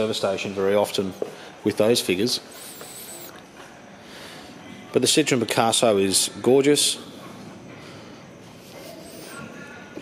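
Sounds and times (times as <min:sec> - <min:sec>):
faint hiss: 0:02.4 - 0:03.4.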